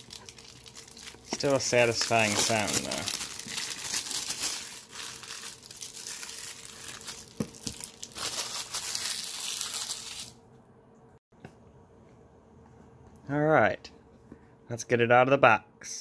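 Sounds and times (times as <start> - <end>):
plastic wrap crinkling and tearing: 0.0 - 10.4.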